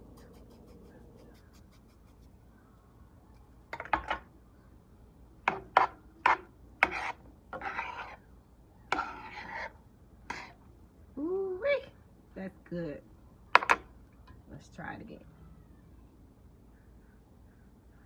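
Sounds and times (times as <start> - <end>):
metal spoon scraping a frying pan: 5.5 - 8.2, 8.9 - 10.6.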